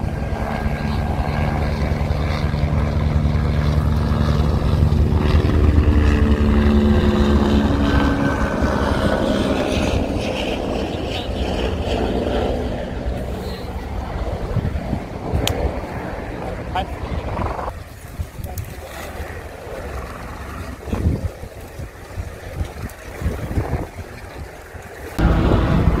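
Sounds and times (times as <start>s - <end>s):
droning hum: 0.0s - 17.9s, 24.7s - 26.0s
low rumbling roar of lava: 12.6s - 17.8s, 19.2s - 26.0s.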